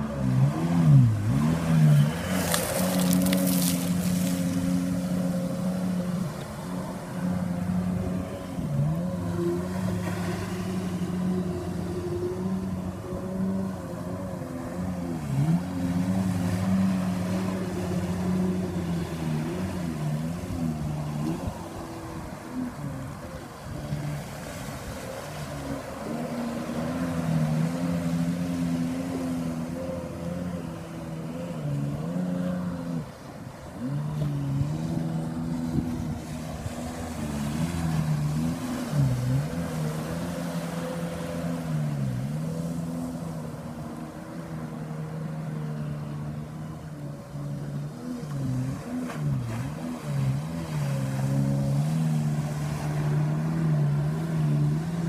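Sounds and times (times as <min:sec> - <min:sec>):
watercraft engine revving: 0:00.0 - 0:55.0.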